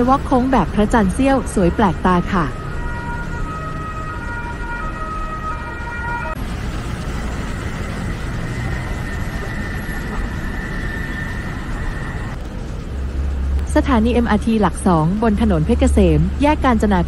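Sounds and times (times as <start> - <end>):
road traffic noise: 0.0 - 17.0
electronic tone changing pitch: 7.2 - 12.4.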